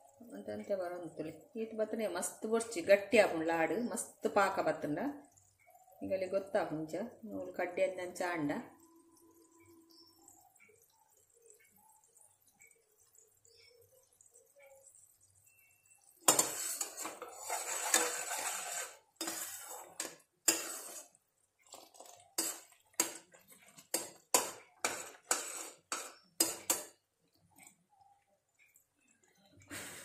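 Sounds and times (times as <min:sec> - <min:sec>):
syrup bubbling: 0:08.6 - 0:29.7
spatula scraping pan: 0:16.2 - 0:26.9.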